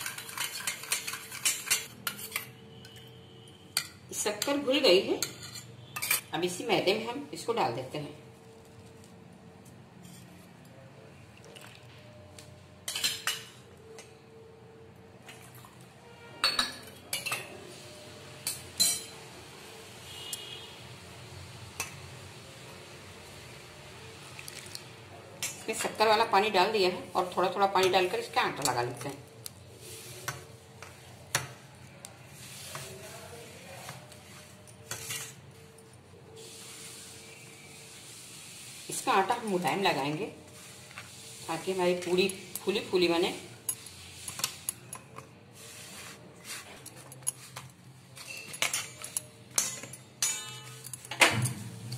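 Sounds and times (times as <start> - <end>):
steel kitchenware clinking: 0.0 - 3.1, 3.7 - 6.6, 12.8 - 14.1, 16.4 - 17.6, 18.4 - 19.2, 27.4 - 29.2, 32.6 - 35.8, 41.6 - 45.4, 46.6 - 51.9
hand rubbing flour on metal plate: 45.6 - 46.8.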